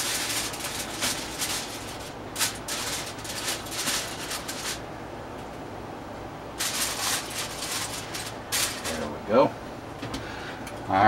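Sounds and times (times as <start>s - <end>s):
rustling and rubbing swishes: 0.0s - 4.8s, 6.6s - 9.0s
sharp crackle: 0.0s - 4.8s, 6.6s - 9.0s.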